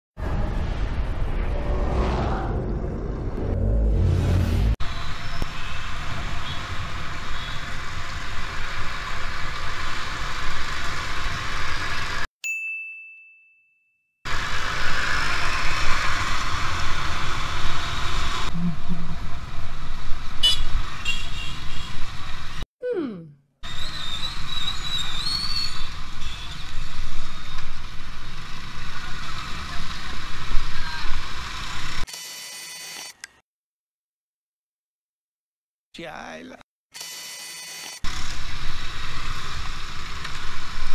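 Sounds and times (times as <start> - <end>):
wind and road noise: 0.2 - 12.3, 14.3 - 22.6, 23.6 - 32.0, 38.0 - 40.9
bright ding: 12.4 - 13.9.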